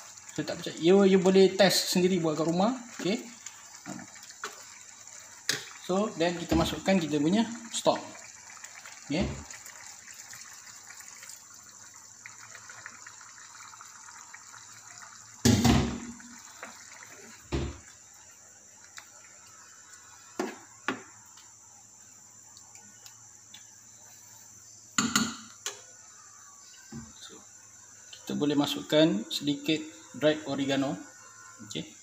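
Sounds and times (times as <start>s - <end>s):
liquid pouring into pot: 0.0s - 21.2s
spoon knocking against pot: 25.0s - 25.4s.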